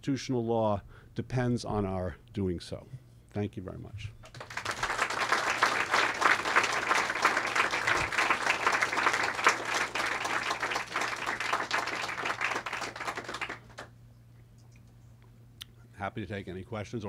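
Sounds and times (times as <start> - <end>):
audience applauding: 4.3 - 13.9.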